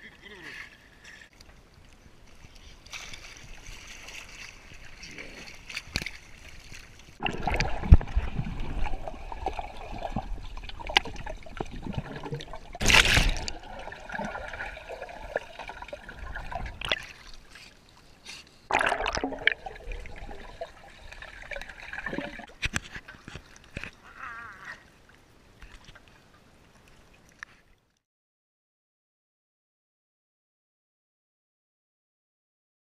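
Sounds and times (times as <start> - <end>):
pool water splashing and gurgling: 3.0 - 24.1.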